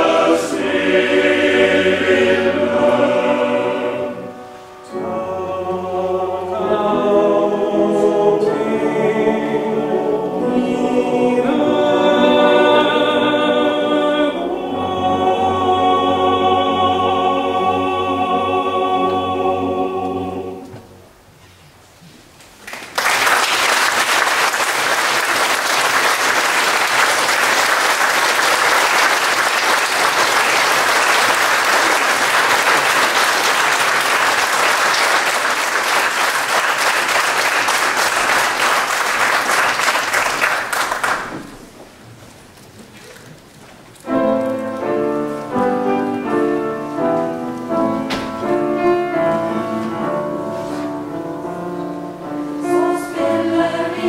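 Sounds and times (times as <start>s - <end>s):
piano playing: 0.0s - 21.2s, 44.0s - 54.0s
audience applauding: 22.6s - 41.6s.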